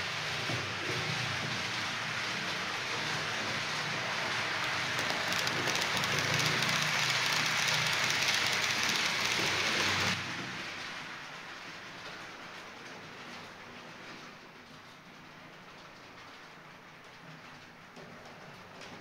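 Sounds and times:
model train wheels rattling on rails: 0:00.0 - 0:12.7.

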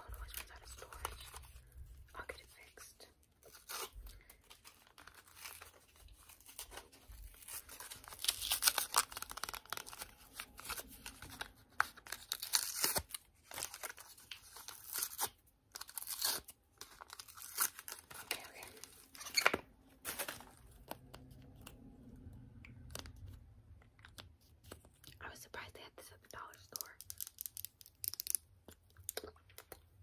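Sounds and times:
plastic wrapping crinkling: 0:03.4 - 0:21.7.

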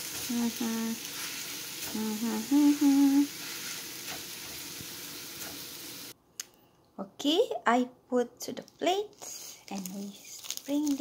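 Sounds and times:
noodles sizzling in oil: 0:00.0 - 0:06.2
person humming: 0:00.2 - 0:01.1, 0:01.8 - 0:03.3.

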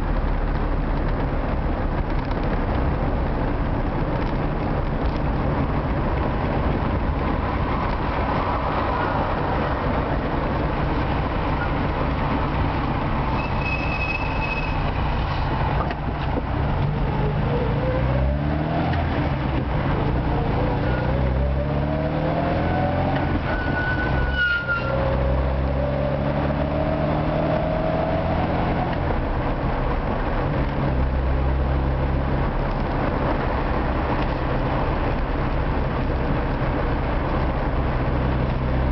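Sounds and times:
road noise: 0:00.0 - 0:38.9
car engine accelerating: 0:14.8 - 0:24.3, 0:24.9 - 0:38.9.

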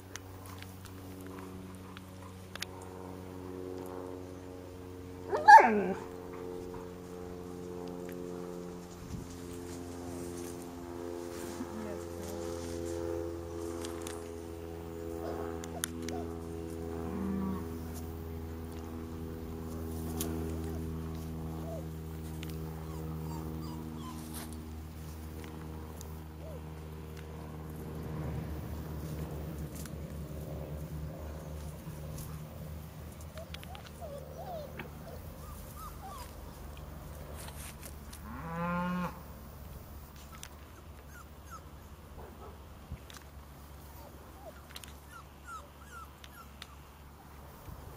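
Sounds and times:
puppy whimpering: 0:16.0 - 0:16.4, 0:21.6 - 0:21.9, 0:22.8 - 0:24.4, 0:33.4 - 0:36.6, 0:40.3 - 0:41.9, 0:43.9 - 0:47.0
cows mooing: 0:17.0 - 0:17.8, 0:38.2 - 0:39.2.

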